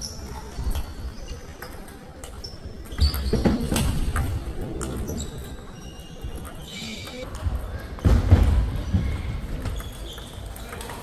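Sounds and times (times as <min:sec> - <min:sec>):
shoes squeaking: 0:04.6 - 0:07.3, 0:09.6 - 0:11.0.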